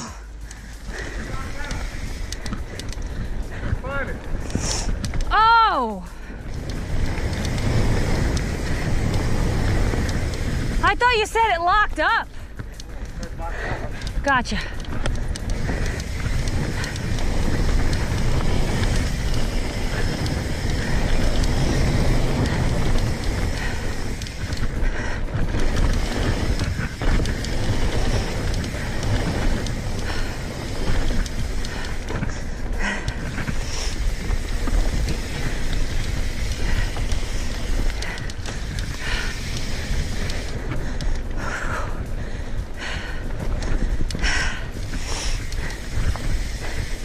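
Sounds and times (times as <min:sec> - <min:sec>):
tyres rolling on dirt: 0:00.0 - 0:47.0
wind on microphone: 0:06.2 - 0:47.0
bike knocks and rattles: 0:14.7 - 0:47.0.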